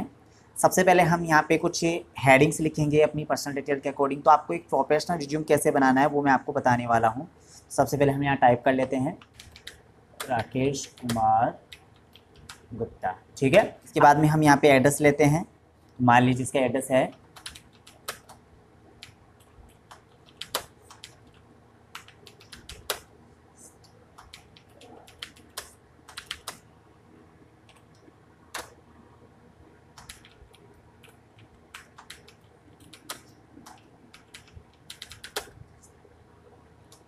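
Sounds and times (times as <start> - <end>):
keyboard typing clicks: 9.2 - 12.7, 17.1 - 18.4, 19.0 - 21.4, 22.0 - 23.1, 23.8 - 26.6, 27.7 - 28.8, 29.9 - 35.6.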